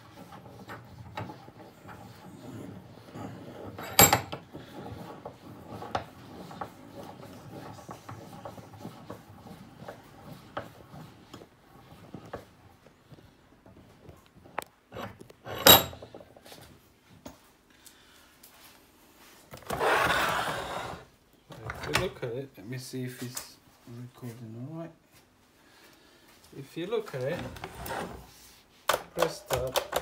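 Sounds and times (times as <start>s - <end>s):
phone handling rubbing and scraping: 0.0s - 16.6s.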